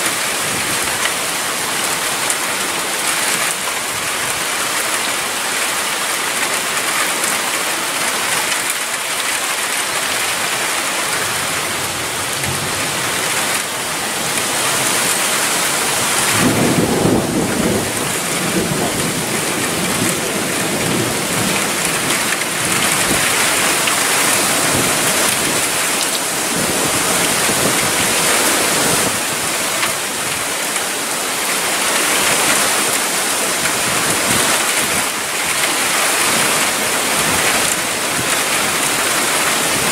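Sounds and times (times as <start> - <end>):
heavy rain pouring: 0.0 - 39.9
thunder rumbling: 11.3 - 29.2.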